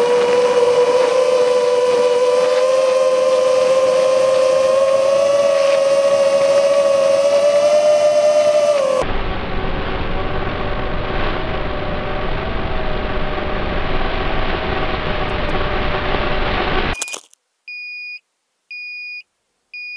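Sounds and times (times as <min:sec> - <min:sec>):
quadcopter motors whining: 0:00.0 - 0:09.1
drone crash clatter: 0:09.0 - 0:17.0
short high beeps: 0:17.0 - 0:19.2.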